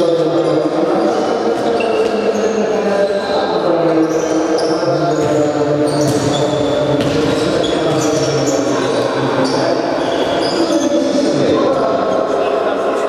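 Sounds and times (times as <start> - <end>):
players' voices reverberating: 0.0 - 13.0
ball thudding on hard court: 6.0 - 6.4, 7.0 - 8.0.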